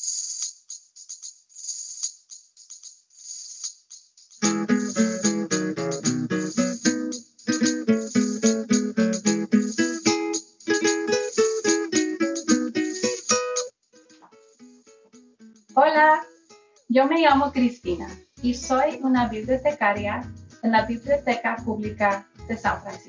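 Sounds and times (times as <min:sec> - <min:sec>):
shaker rhythm: 0:00.0 - 0:23.0
plucked acoustic strings: 0:04.4 - 0:15.0, 0:17.3 - 0:23.0.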